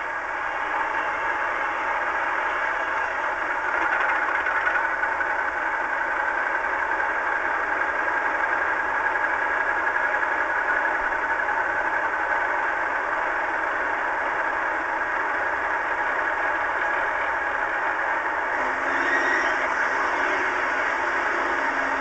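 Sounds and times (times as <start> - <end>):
model locomotive engine idling: 0.0 - 22.0.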